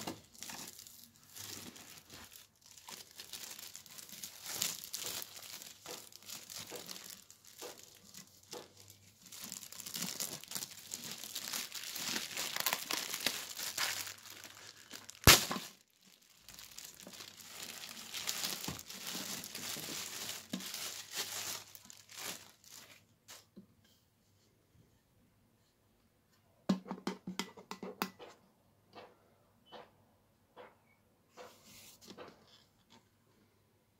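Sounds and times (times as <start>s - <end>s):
plastic bag crinkling: 0.0s - 23.4s.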